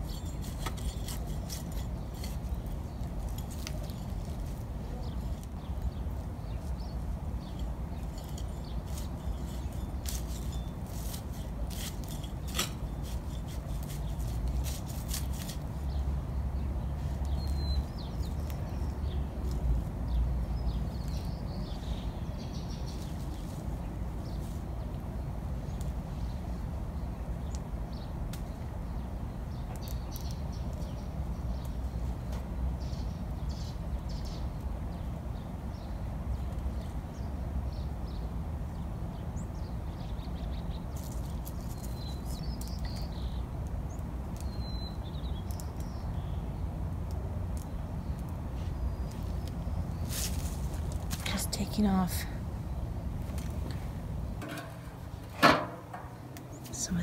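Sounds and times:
trowel scraping in soil: 0.0 - 5.5, 8.0 - 15.7
faint bird chirp: 15.8 - 19.3, 35.7 - 46.6.

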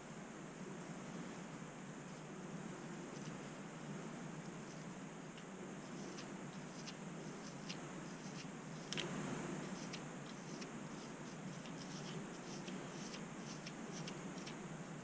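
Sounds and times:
steady low hum: 0.0 - 15.0
scraping at a scalp: 5.8 - 15.0.

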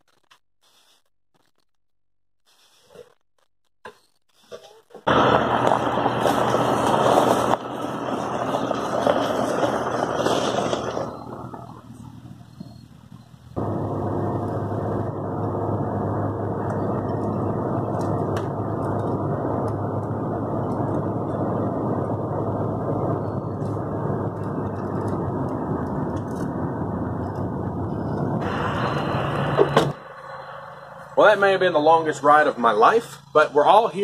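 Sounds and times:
car interior road noise: 5.1 - 32.9
bright noise: 27.9 - 32.9.

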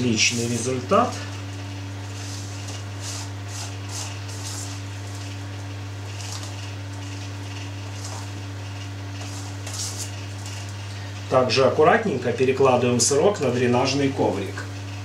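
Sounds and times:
low electrical hum: 0.0 - 15.0
fingers rustling and patting: 1.3 - 10.8.

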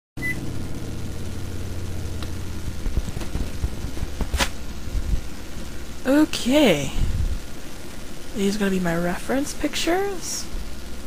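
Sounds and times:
low electrical hum: 0.2 - 11.0
soft low bumps: 1.0 - 5.9.

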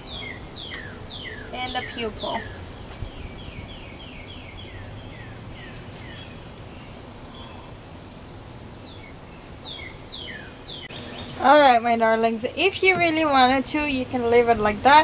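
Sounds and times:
songbird whistling: 0.0 - 7.7
bird chirps: 0.0 - 11.9
outdoor background noise: 0.0 - 15.0.

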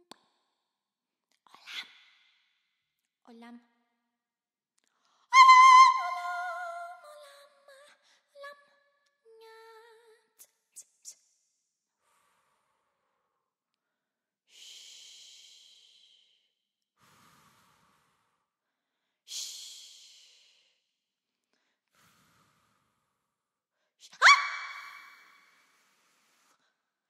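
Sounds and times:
person breathing into microphone: 17.0 - 19.0, 21.6 - 23.3.

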